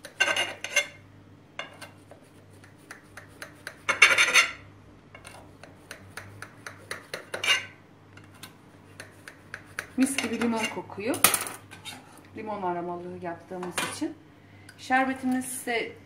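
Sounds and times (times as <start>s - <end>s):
knife scraping glass dish: 0.0s - 1.0s, 3.2s - 4.6s, 6.7s - 8.3s, 8.9s - 10.9s, 11.7s - 12.2s.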